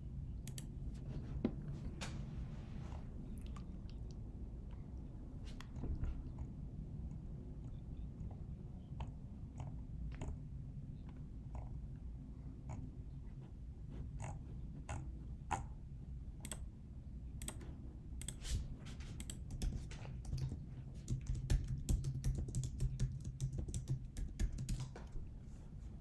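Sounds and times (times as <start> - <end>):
low steady hum: 0.0 - 26.0
typing on computer keyboard: 19.2 - 25.2.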